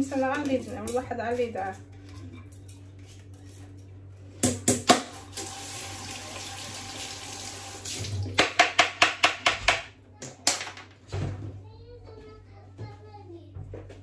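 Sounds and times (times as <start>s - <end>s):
kitchen tap running: 5.0s - 9.4s.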